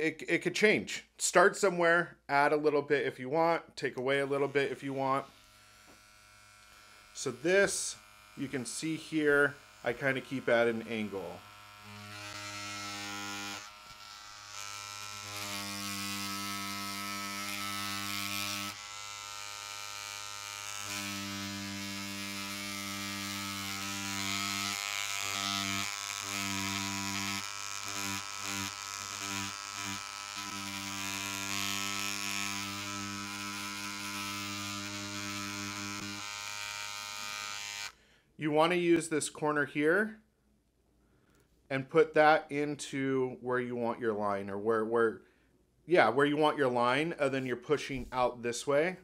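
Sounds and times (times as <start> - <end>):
tattoo machine buzzing: 5.2 - 8.8, 9.4 - 38.0.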